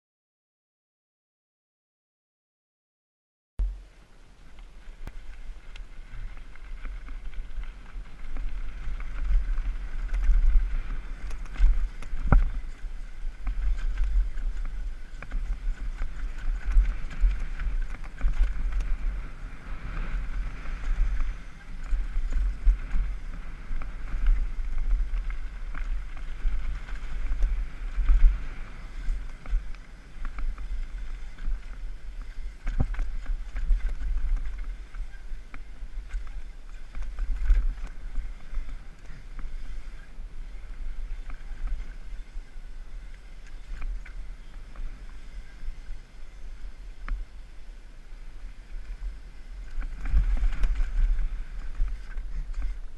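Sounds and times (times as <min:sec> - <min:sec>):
wind rumble on microphone: 0:03.6 - 0:52.9
bike knocks and rattles: 0:05.1 - 0:39.8.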